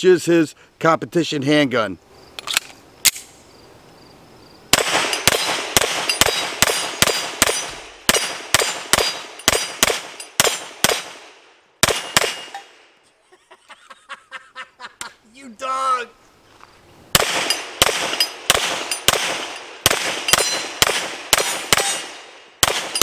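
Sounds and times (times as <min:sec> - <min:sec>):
gun handling clicks: 0:02.3 - 0:03.4
rapid pistol shots: 0:04.7 - 0:12.5, 0:17.1 - 0:23.0
steel targets ringing: 0:20.3 - 0:20.7.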